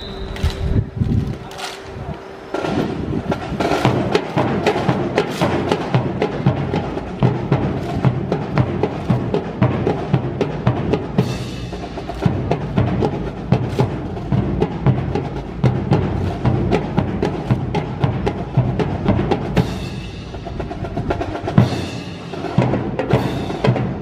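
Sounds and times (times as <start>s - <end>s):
rifle clicks and strikes: 0.1s - 1.9s
percussion music with drum beat: 2.5s - 24.0s.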